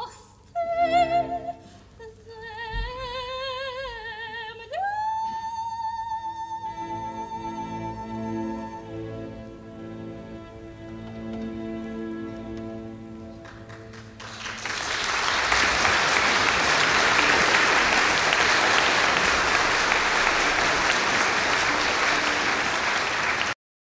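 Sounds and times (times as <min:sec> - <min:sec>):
orchestra chord: 0:06.8 - 0:14.5, 0:15.2 - 0:23.5
audience applause: 0:13.3 - 0:23.6.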